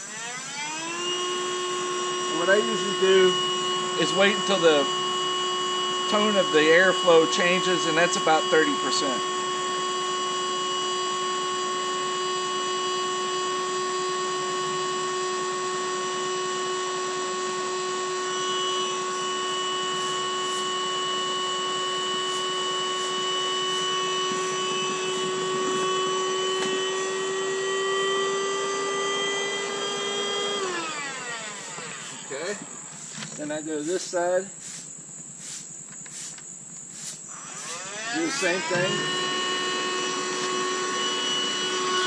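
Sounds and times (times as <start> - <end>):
air inflator running: 0.0 - 42.0
air blowing: 22.2 - 27.0.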